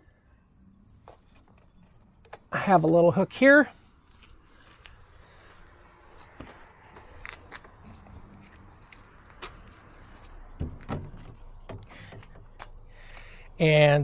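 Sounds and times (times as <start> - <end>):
dull thumps: 10.5 - 12.6.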